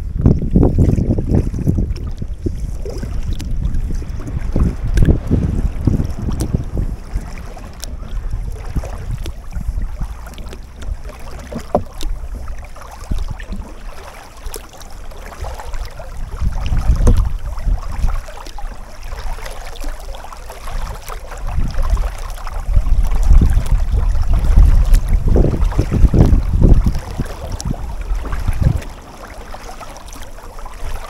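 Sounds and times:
kayak paddle strokes in water: 0.0 - 31.0
wind rumble on microphone: 0.0 - 31.0
light wash of bow: 0.7 - 31.0
water drips: 2.9 - 19.9, 24.9 - 31.0.

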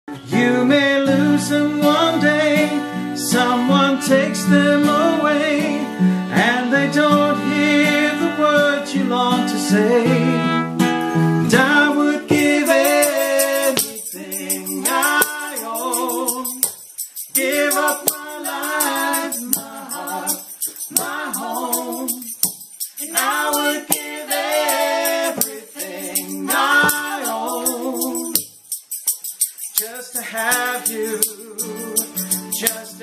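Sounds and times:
voices singing in harmony: 11.5 - 28.5
tambourine shaken: 11.6 - 33.0.

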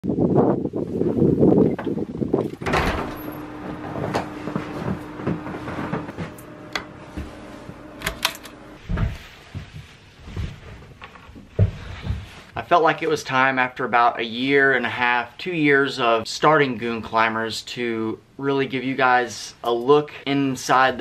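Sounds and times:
wind on microphone: 0.0 - 2.8
low footsteps: 2.4 - 12.5.

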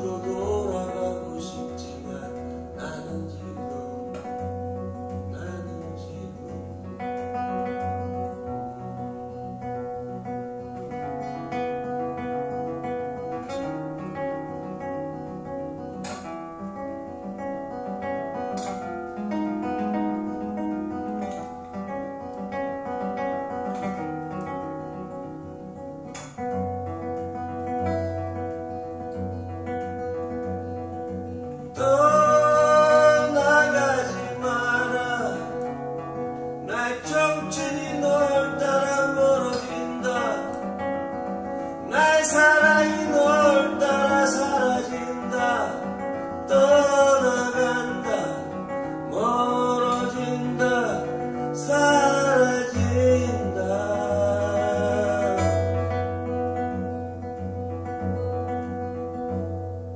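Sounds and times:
man singing slow song: 0.0 - 6.9, 31.5 - 56.3
acoustic guitar: 0.0 - 59.9.

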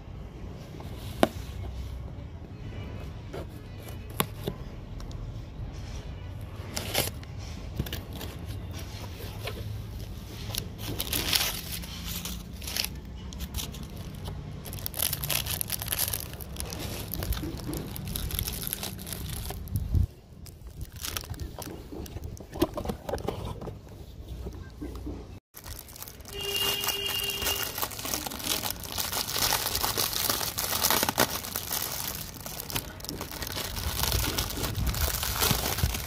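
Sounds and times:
packing tape peeling and tearing: 10.6 - 19.9, 25.6 - 36.0
plastic bag crinkling: 10.6 - 22.6, 25.5 - 36.0.

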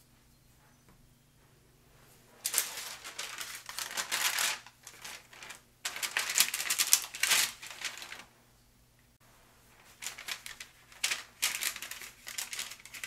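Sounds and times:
parchment paper crinkling: 2.3 - 8.3, 9.7 - 13.0.

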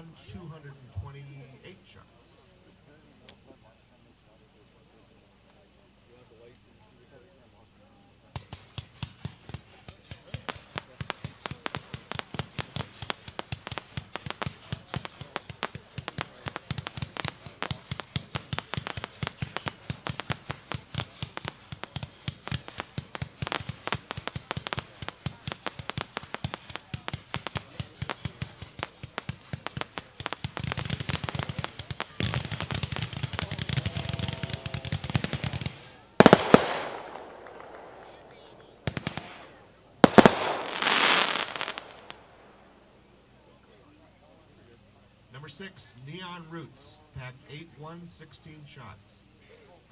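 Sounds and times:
fireworks cake firing rapid shots: 8.2 - 42.8
loud firework bang: 10.2 - 42.5.

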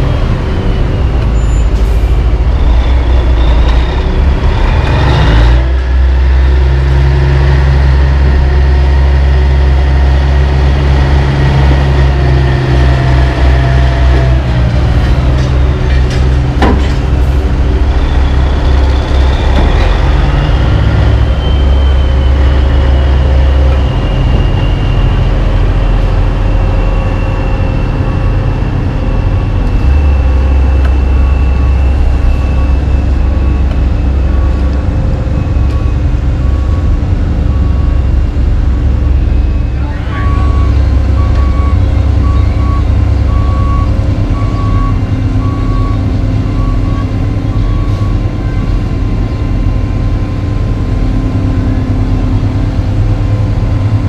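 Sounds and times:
heavy diesel engines running: 0.0 - 54.0.

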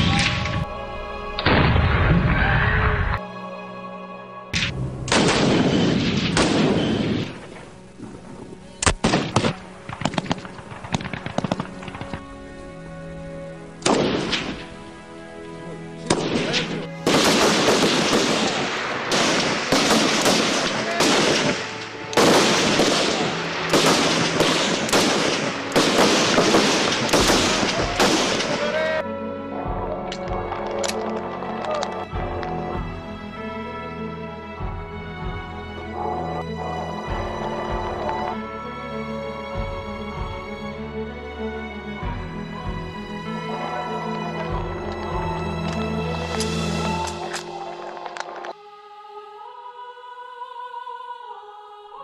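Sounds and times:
background music steady notes: 0.0 - 52.0
rifle shots: 4.6 - 7.7, 8.8 - 12.3, 13.8 - 14.7, 16.1 - 29.0.

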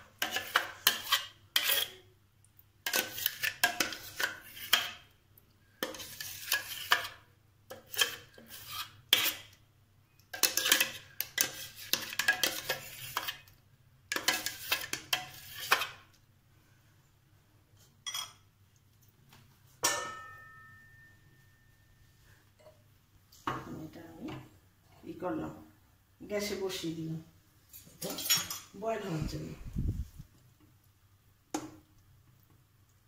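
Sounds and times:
metal spoon scraping a jar: 0.2 - 2.0, 2.8 - 5.0, 5.8 - 9.5, 10.4 - 13.5, 14.1 - 16.0
faint steady hum: 16.1 - 27.9.

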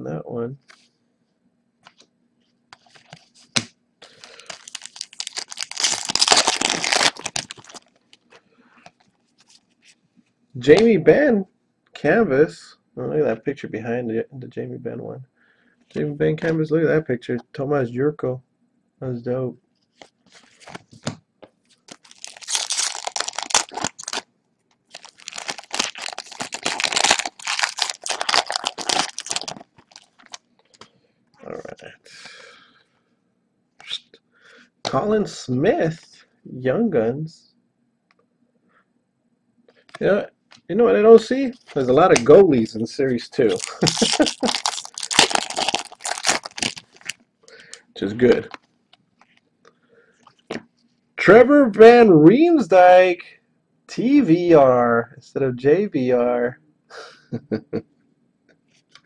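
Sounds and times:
plastic wrapper tearing and crinkling: 4.1 - 8.3, 21.8 - 24.3, 24.9 - 30.4, 43.4 - 47.2.

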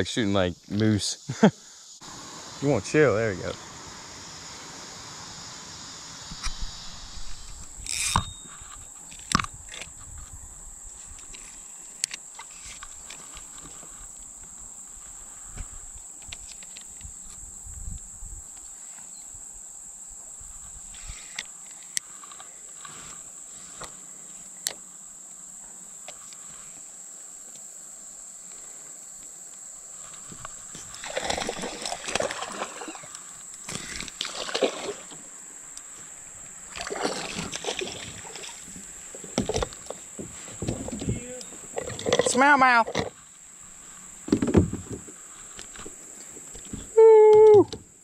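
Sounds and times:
water splashing around kayak: 30.6 - 35.6, 36.3 - 46.0.

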